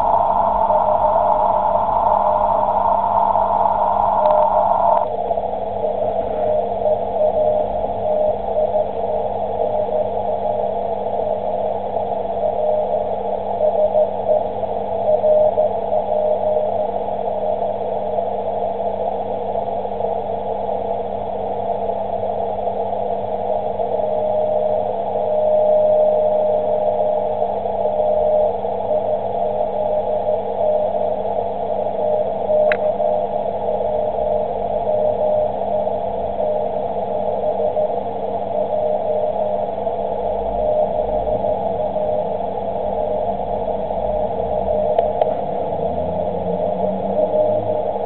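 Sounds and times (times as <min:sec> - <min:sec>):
radio band hiss: 0:00.0 - 0:18.1
low steady hum: 0:00.0 - 0:48.0.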